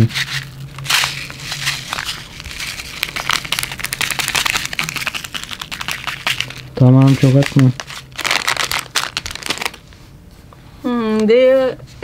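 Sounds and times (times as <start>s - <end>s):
seeds sprinkled onto batter: 0.0s - 8.2s.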